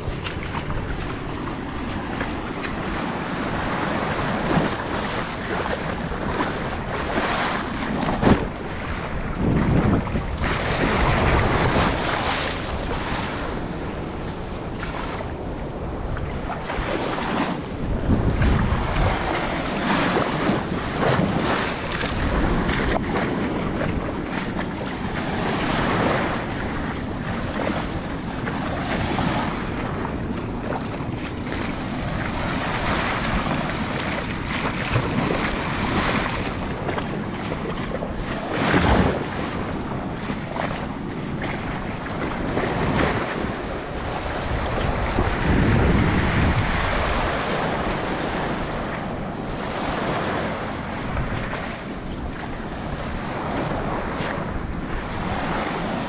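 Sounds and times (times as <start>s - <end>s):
small waves splashing: 0.0s - 56.0s
wind buffeting microphone: 0.0s - 56.0s.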